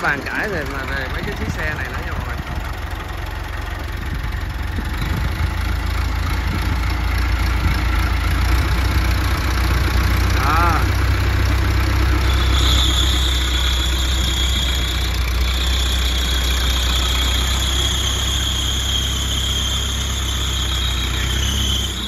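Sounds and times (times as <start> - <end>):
tractor diesel engine running: 0.0 - 22.0
high-pitched whine: 11.8 - 22.0.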